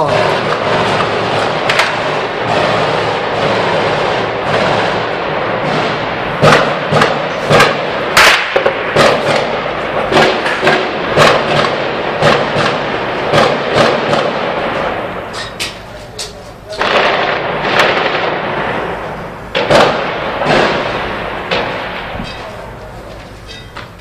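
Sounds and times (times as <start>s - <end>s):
steady rushing noise: 0.0s - 24.0s
gunfire cracks: 0.1s - 15.8s, 16.8s - 22.6s.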